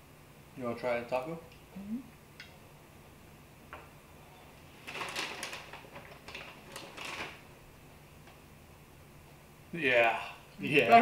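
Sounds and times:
faint steady hum: 0:00.0 - 0:11.0
crackly rustling of eating tacos: 0:04.5 - 0:08.5.

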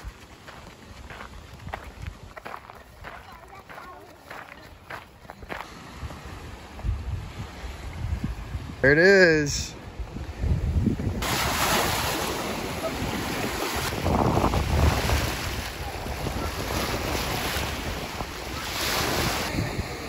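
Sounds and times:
wind buffeting microphone: 0:00.0 - 0:08.8, 0:09.8 - 0:20.0
waves washing on rocky shore: 0:11.2 - 0:20.0.

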